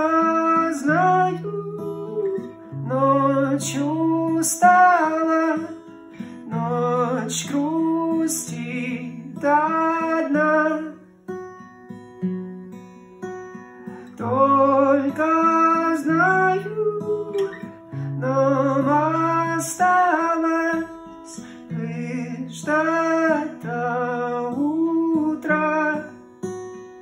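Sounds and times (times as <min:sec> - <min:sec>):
man singing a lullaby: 0:00.0 - 0:11.1, 0:13.9 - 0:26.3
plucked acoustic guitar: 0:00.0 - 0:27.0.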